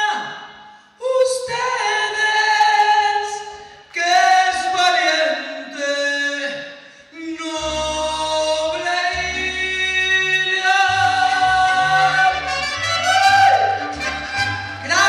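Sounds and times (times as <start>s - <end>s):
woman singing: 1.0s - 6.5s, 7.2s - 15.0s
low bass line: 7.4s - 15.0s
violins: 10.8s - 15.0s
trumpets: 11.4s - 15.0s.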